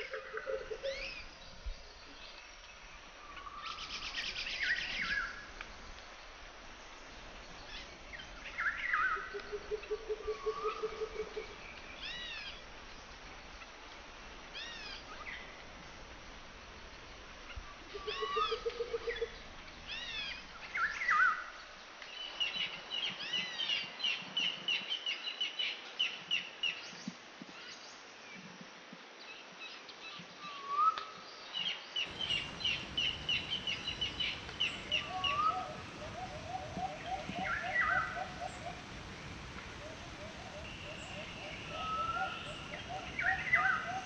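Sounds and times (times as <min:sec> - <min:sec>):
steady background hiss: 0:00.0 - 0:44.0
birds calling: 0:32.0 - 0:44.0.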